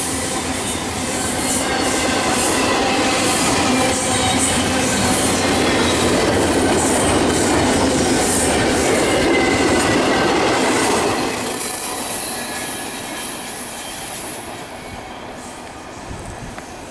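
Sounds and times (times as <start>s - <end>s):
train wheels rumbling on rail: 0.0s - 16.9s
thin high squeal: 11.6s - 15.6s.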